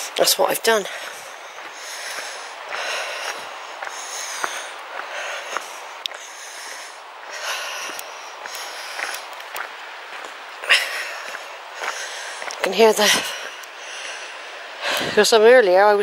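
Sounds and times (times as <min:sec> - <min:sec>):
footsteps on stony path: 0:00.0 - 0:15.5
person breathing: 0:00.7 - 0:15.2
stones clicking underfoot: 0:07.9 - 0:10.4, 0:11.2 - 0:12.7.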